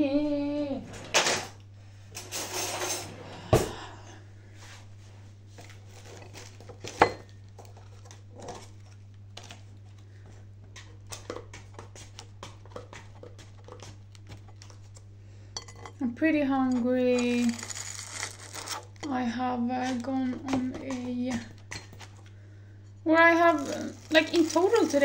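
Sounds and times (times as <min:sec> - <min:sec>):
cutlery rattling in drawer: 0:02.2 - 0:03.1.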